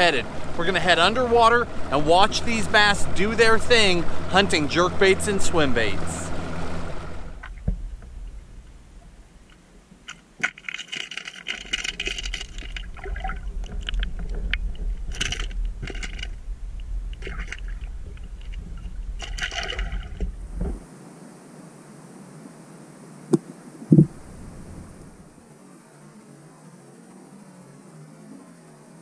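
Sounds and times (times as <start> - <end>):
low underwater rumble: 0.0 - 10.1, 11.8 - 20.8, 23.3 - 25.3
underwater clicking and rattling: 7.4 - 20.8.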